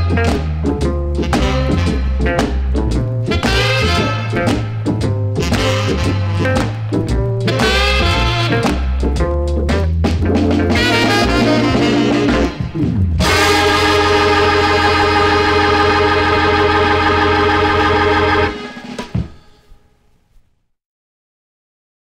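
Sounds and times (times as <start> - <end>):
organ jazz combo playing: 0.0 - 19.5
long organ chord: 10.3 - 19.0.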